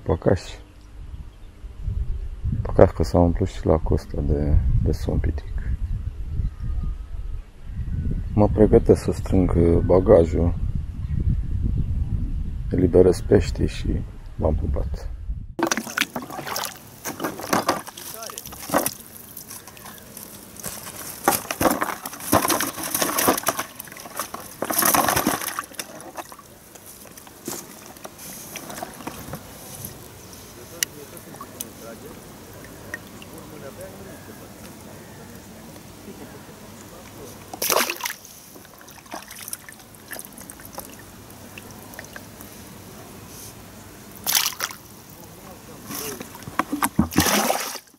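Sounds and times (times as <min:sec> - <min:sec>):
water splashing and sloshing: 0:15.6 - 0:30.1, 0:36.8 - 0:42.5, 0:44.1 - 0:47.9
water trickling and dripping: 0:31.2 - 0:33.7, 0:36.8 - 0:42.5.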